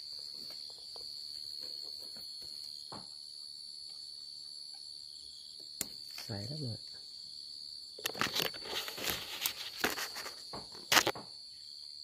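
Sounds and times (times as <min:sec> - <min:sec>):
crickets trilling: 0:00.0 - 0:12.0
faint rustles in leaves: 0:08.0 - 0:11.2.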